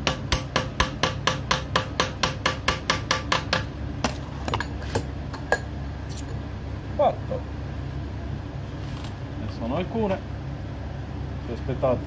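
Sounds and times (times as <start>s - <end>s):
hammer striking metal: 0.0s - 3.7s.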